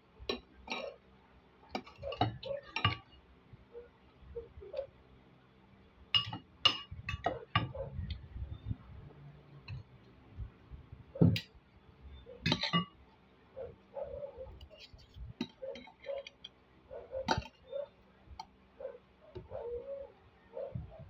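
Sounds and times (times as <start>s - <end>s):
cutlery clinking on a plate: 1.8s - 3.1s, 6.2s - 7.8s, 12.5s - 13.0s.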